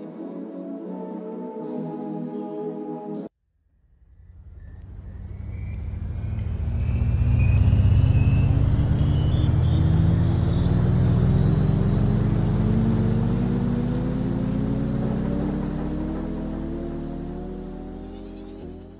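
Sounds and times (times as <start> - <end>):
low rumbling drone: 3.7 - 18.6
faint high whine: 4.0 - 17.1.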